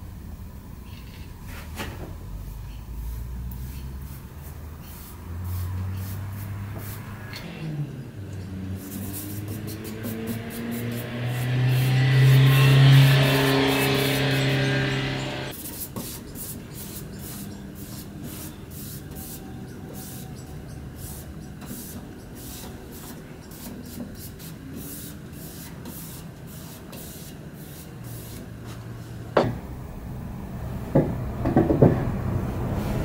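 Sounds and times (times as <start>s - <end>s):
paintbrush swishing on wood: 3.0s - 7.3s, 8.7s - 20.3s, 21.0s - 29.2s
table knocking: 31.0s - 32.0s.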